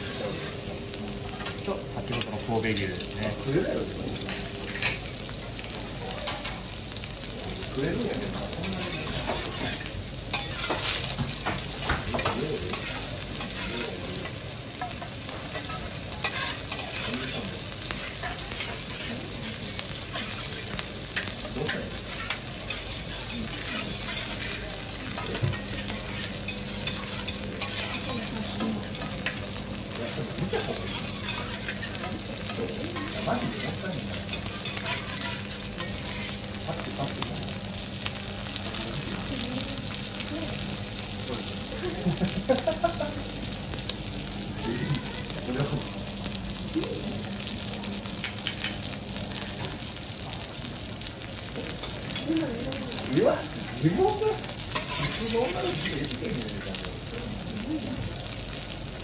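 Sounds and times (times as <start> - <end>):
food sizzling on a griddle: 0.0 - 59.0
metal spatulas scraping and tapping: 25.2 - 28.1, 33.0 - 36.3, 54.7 - 55.9.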